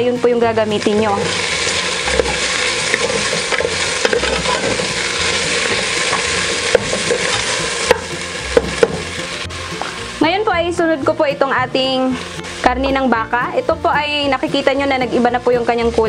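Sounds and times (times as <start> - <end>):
food sizzling in hot oil: 0.0 - 16.0
wooden spatula scraping: 0.8 - 10.3.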